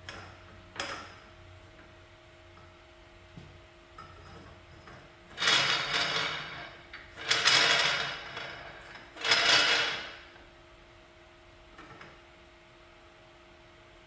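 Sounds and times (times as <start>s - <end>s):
metal pole sliding and scraping: 4.0s - 10.3s.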